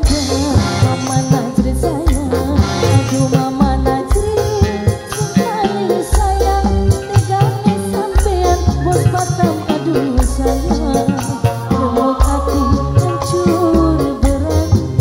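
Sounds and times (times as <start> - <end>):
pulsing bass: 0.0 - 5.1, 5.8 - 15.0
steady percussion: 0.0 - 15.0
woman singing into a microphone: 0.0 - 15.0.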